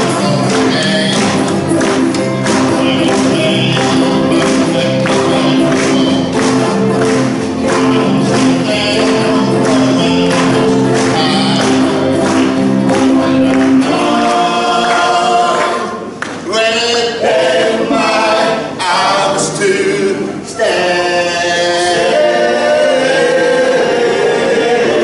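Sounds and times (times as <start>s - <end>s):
electric keyboard: 0.0s - 16.1s
acoustic guitar: 0.0s - 25.0s
person singing: 0.0s - 25.0s.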